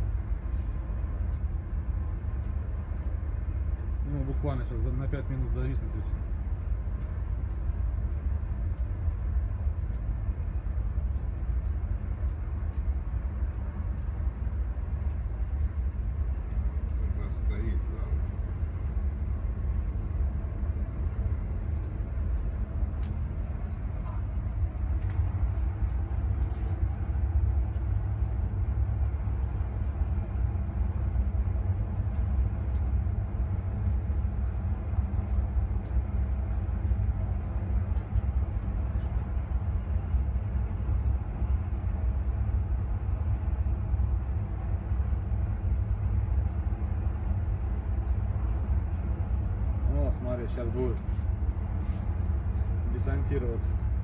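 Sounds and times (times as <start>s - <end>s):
low rumble of wind: 0.0s - 54.0s
machinery rumble: 0.0s - 54.0s.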